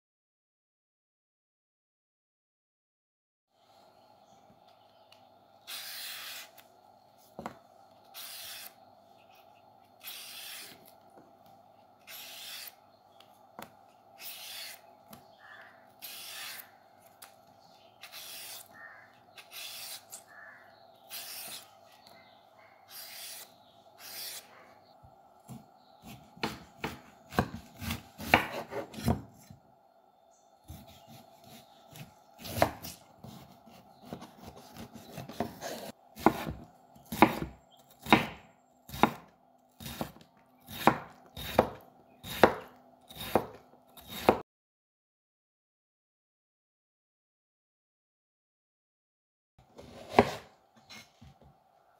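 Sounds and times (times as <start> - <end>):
peeler scraping cucumber skin: 5.6 - 6.7, 8.1 - 8.8, 12.0 - 13.3, 14.2 - 14.9, 16.0 - 17.3, 18.0 - 18.8, 19.4 - 20.3, 21.1 - 21.7, 22.9 - 24.5
knife cutting cucumber: 12.0 - 17.4, 18.0 - 20.4, 21.1 - 22.1, 22.9 - 24.5, 25.4 - 29.6, 30.7 - 44.4, 49.8 - 51.1.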